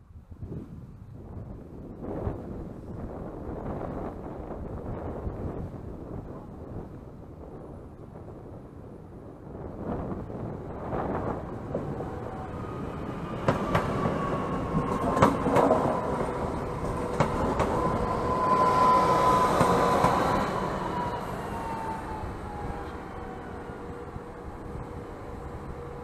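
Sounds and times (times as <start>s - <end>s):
train electric whine: 10.9s - 26.0s
train wheels clicking over rail joints: 13.4s - 18.6s.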